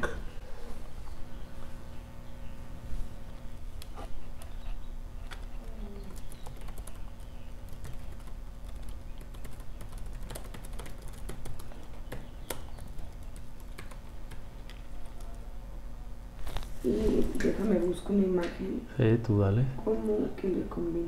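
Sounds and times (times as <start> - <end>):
low room hum: 0.0 - 21.0
typing on a keyboard: 6.0 - 15.4.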